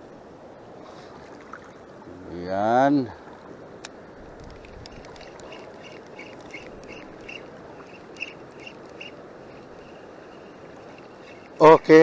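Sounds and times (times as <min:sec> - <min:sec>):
water noise: 0:00.0 - 0:12.0
wind: 0:00.0 - 0:12.0
fishing reel squeaking: 0:04.8 - 0:11.6.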